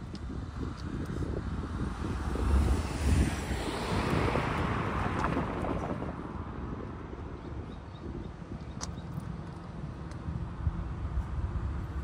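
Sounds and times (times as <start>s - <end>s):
wind rumble on microphone: 0.0s - 12.0s.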